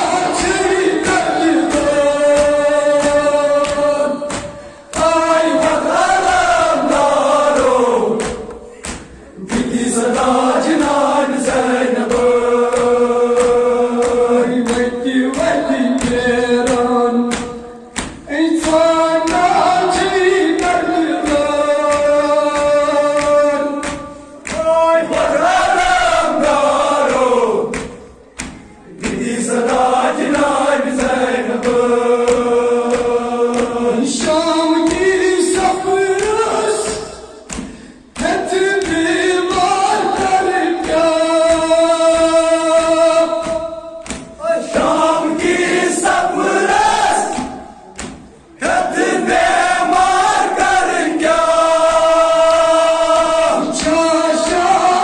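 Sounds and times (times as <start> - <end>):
voices chanting a lament: 0.0 - 55.0
regular thuds: 26.7 - 51.3.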